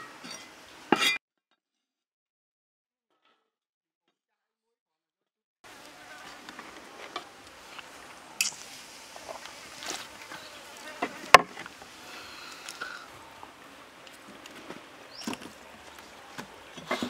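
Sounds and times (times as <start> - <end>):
faint insects buzzing: 5.7 - 16.7.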